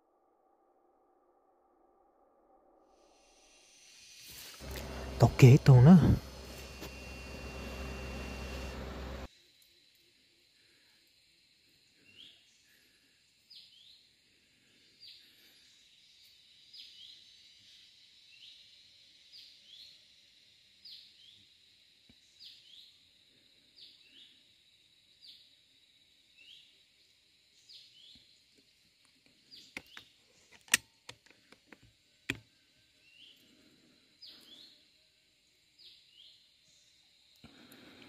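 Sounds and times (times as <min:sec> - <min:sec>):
thin steady high tone: 0:02.9 - 0:09.3.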